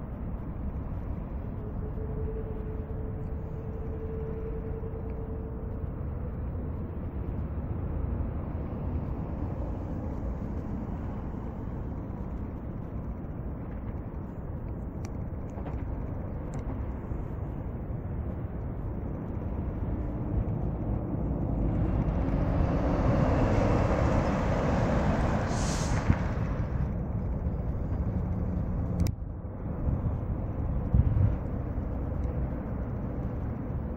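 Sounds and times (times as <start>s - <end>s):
jet engines rumbling: 0.0s - 33.9s
rising engine hiss: 22.3s - 26.8s.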